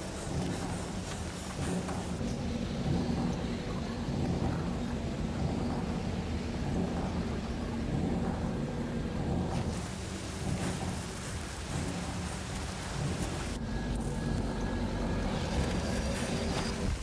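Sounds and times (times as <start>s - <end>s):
deep rumbling drone: 1.8s - 17.0s
even hiss: 8.8s - 14.4s.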